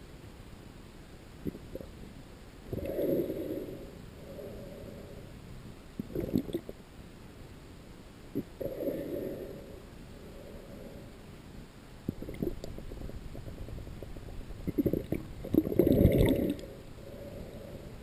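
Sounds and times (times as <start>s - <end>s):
underwater gurgling and bubbling: 6.0s - 6.8s, 12.1s - 17.8s.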